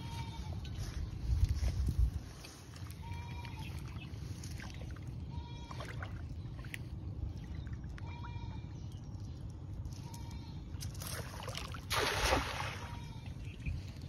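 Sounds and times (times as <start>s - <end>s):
water sloshing: 10.8s - 13.3s.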